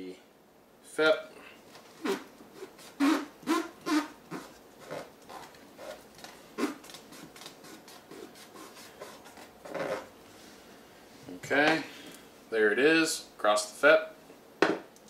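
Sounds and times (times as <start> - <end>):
fingers rubbing tape onto film: 1.9 - 10.1.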